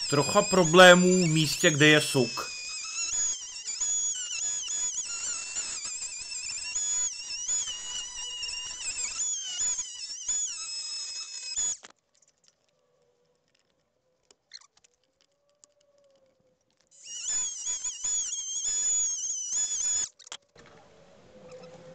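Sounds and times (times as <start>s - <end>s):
power tool cutting wood: 0.0s - 11.8s, 17.0s - 20.1s
faint ticks: 11.6s - 18.8s.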